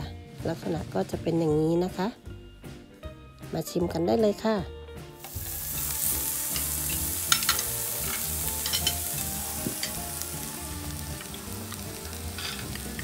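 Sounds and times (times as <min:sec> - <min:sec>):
meat sizzling on griddle: 0:05.2 - 0:13.0.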